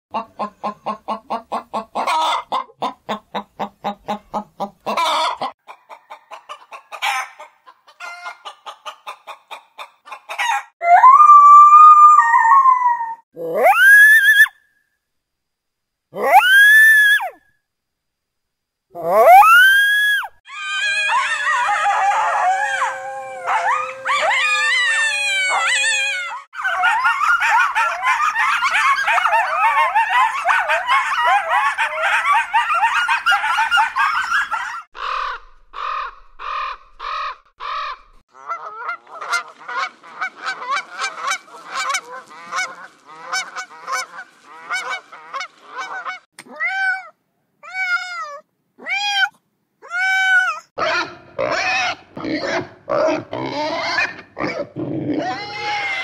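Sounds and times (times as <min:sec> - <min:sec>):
animal calls: 0:10.4 - 0:14.5, 0:16.2 - 0:17.4, 0:19.0 - 0:56.0.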